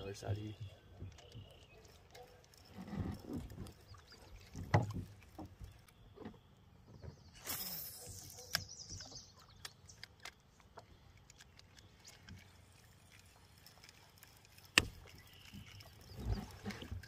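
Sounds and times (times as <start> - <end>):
small clicks and knocks on boat: 0.3 - 7.4, 8.1 - 17.0
water splashing: 1.0 - 5.9, 11.3 - 17.0.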